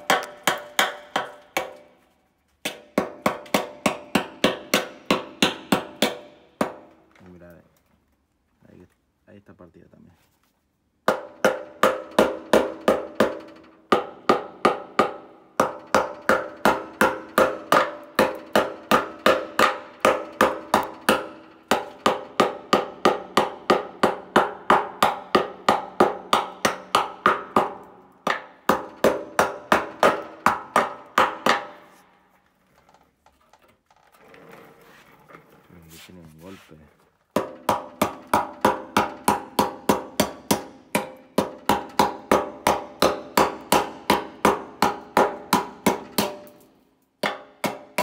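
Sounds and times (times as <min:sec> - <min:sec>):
hammer striking metal tank: 0:00.0 - 0:02.0, 0:02.6 - 0:07.0, 0:11.0 - 0:32.0, 0:37.3 - 0:46.6, 0:47.2 - 0:48.0.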